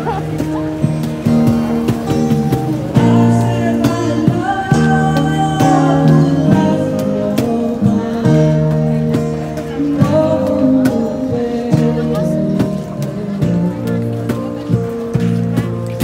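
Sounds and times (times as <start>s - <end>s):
acoustic guitars strumming: 0.0s - 16.0s
person singing: 2.9s - 15.0s.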